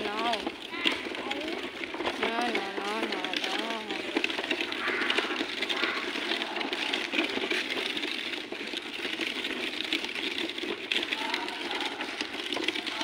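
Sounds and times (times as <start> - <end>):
plastic wheels rattling on concrete: 0.0 - 13.0.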